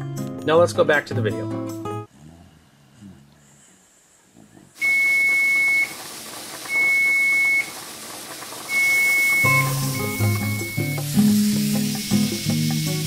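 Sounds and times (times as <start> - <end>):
steady hiss: 3.4 - 13.0
high-pitched alarm beeps: 8.7 - 11.2.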